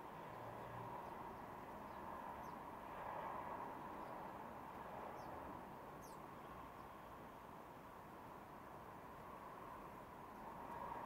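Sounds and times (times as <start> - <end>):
sparrow chirps: 6.0 - 6.9.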